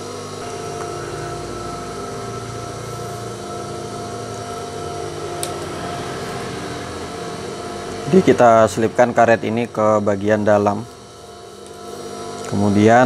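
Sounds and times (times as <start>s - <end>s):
sewing machine motor humming: 0.0s - 13.0s.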